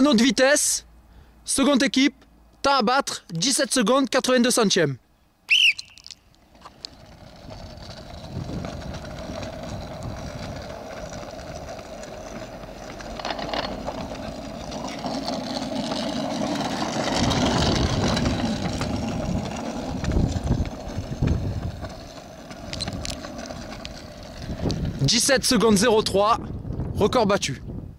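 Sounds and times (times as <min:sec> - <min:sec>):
small wheels rolling on asphalt: 0:05.5 - 0:27.6.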